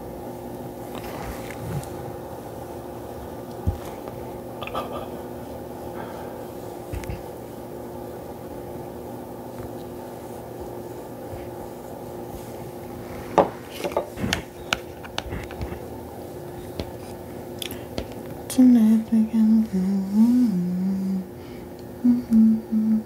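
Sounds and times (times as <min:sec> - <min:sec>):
low appliance hum: 0:00.0 - 0:23.0
brush tapping and scraping bowl: 0:09.5 - 0:15.9, 0:16.5 - 0:17.2.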